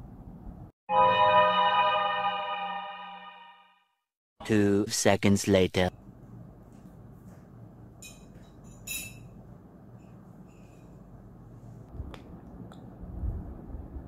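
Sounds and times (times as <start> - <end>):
faint room hum: 4.4 - 14.0.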